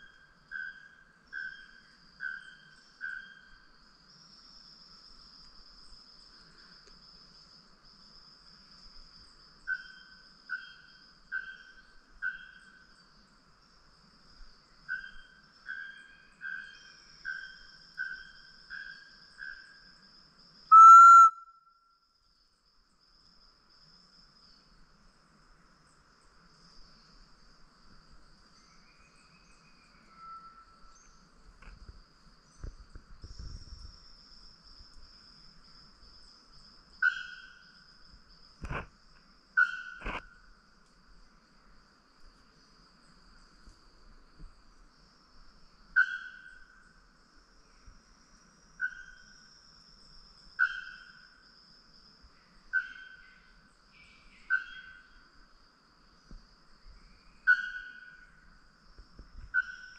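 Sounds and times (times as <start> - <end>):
loud short whistle: 20.7 - 21.6
short whistled notes: 20.7 - 21.6
high insect buzz: 22.6 - 59.9.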